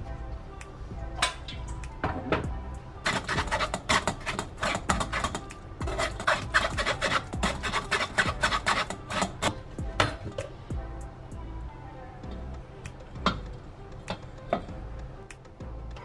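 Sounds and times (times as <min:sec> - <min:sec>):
ladle rasping against metal sieve: 0:03.0 - 0:09.5.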